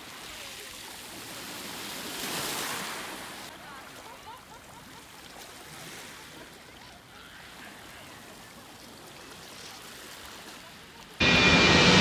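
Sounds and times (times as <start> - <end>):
small waves on pebble shore: 0.0 - 11.2.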